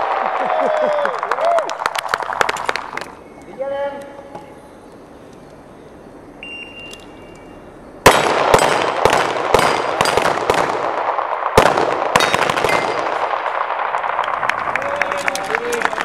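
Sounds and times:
shot timer beep: 0:06.4 - 0:07.6
rapid pistol fire: 0:08.0 - 0:14.4
steel targets ringing: 0:12.2 - 0:13.3.

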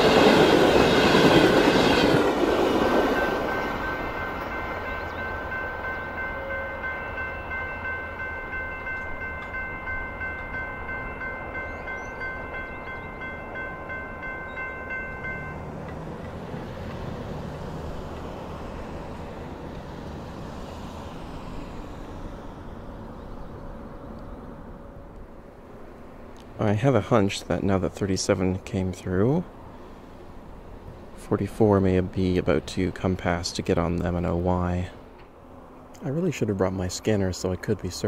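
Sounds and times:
railway crossing bell ringing: 0:00.0 - 0:17.1, 0:36.0 - 0:38.0.

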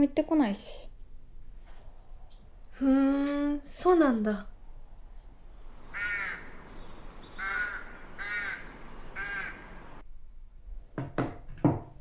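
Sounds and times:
faint steady hiss: 0:00.0 - 0:10.6
crow cawing: 0:05.7 - 0:10.0.

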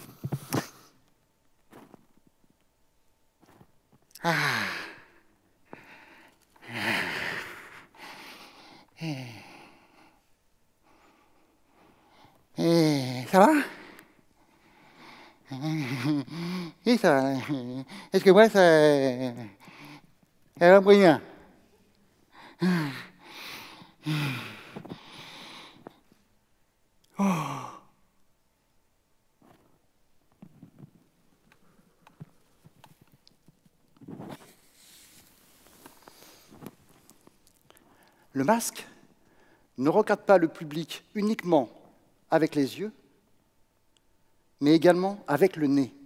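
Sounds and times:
man sighing: 0:04.1 - 0:05.2, 0:09.0 - 0:09.8, 0:15.4 - 0:16.8, 0:22.4 - 0:25.9, 0:27.1 - 0:28.0
man's breathy exhalations: 0:22.3 - 0:26.0.

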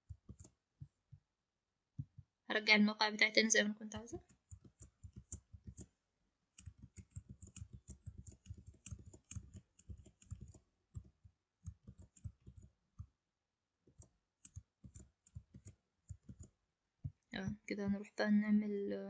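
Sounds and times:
computer keyboard typing: 0:00.0 - 0:00.5, 0:04.0 - 0:05.9, 0:06.6 - 0:12.7, 0:13.9 - 0:16.5.

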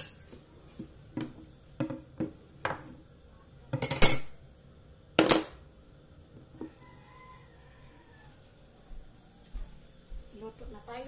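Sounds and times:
dishes and utensils clinking: 0:00.0 - 0:02.9, 0:03.7 - 0:04.4.

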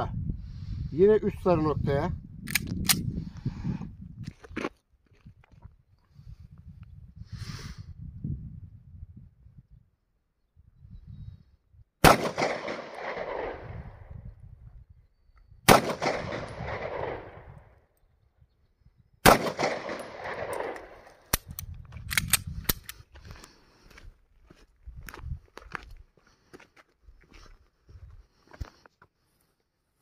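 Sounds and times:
pistol handling clicks: 0:02.5 - 0:03.1, 0:19.3 - 0:23.0
pistol shots with echo: 0:12.0 - 0:13.9, 0:15.7 - 0:17.5, 0:19.2 - 0:21.2.

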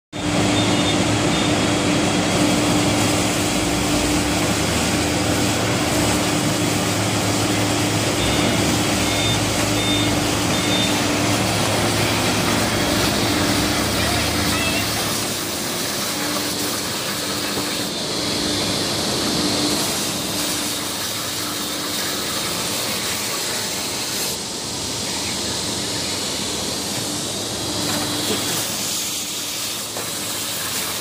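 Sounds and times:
constant machine hum: 0:00.2 - 0:31.0
veneer grinding machine: 0:00.2 - 0:31.0
faint short high beeps: 0:08.2 - 0:11.1.

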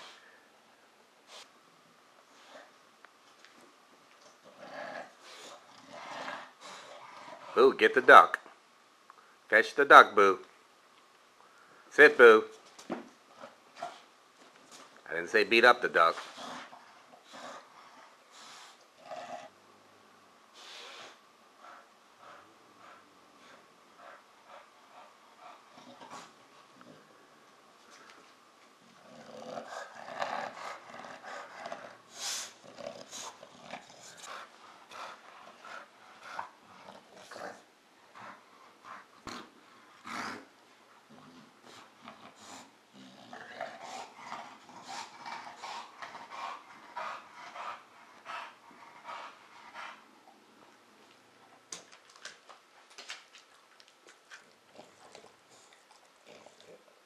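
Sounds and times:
dog growling: 0:04.4 - 0:08.1, 0:16.2 - 0:19.6, 0:21.6 - 0:27.2, 0:28.8 - 0:40.5, 0:41.1 - 0:50.4, 0:54.7 - 0:57.0.

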